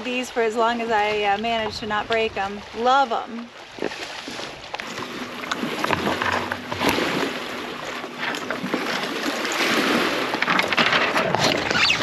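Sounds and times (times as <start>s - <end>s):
branches scraping against kayak: 3.7s - 12.0s.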